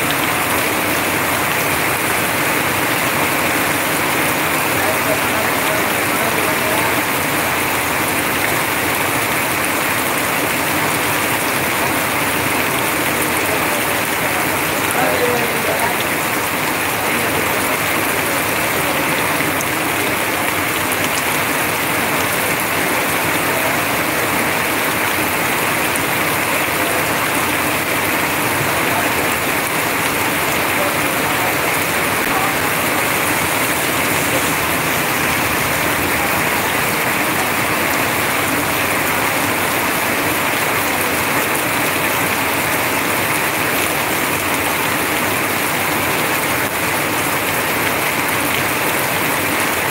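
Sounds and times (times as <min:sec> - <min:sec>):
heavy rain: 0:00.0 - 0:49.9
water pouring off roof: 0:00.0 - 0:49.9.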